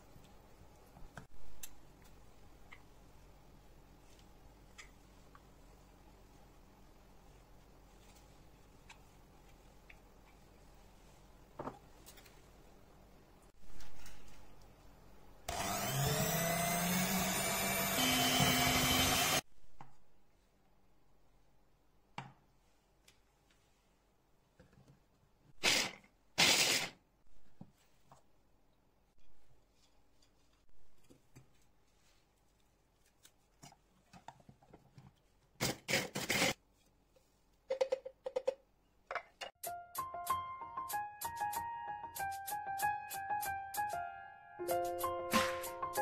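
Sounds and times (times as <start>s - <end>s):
electric hand mixer running: 15.5s - 19.4s.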